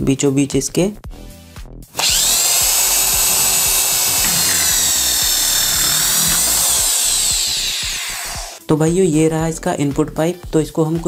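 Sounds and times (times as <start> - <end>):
electric drill whining: 2.0 - 8.6.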